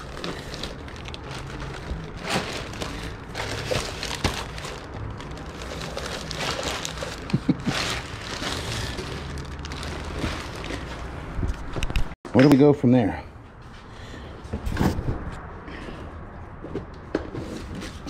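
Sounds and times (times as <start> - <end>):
bags rustling and crinkling: 0.0 - 11.8.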